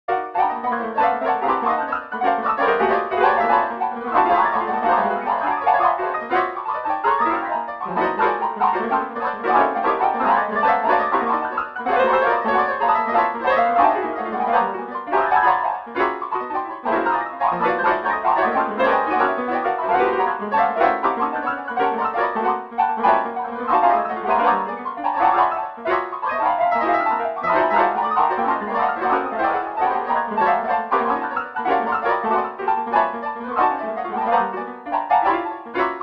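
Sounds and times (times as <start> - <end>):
piano music with quick notes: 0.1 - 36.0.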